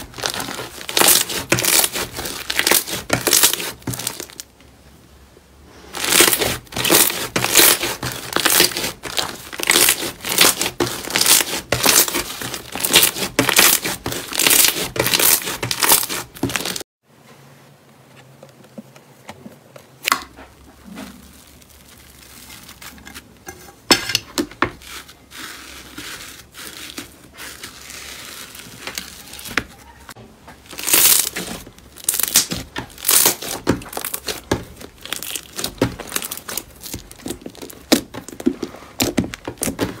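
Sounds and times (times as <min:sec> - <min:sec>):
slime crackly pops: 0:32.0 - 0:38.1.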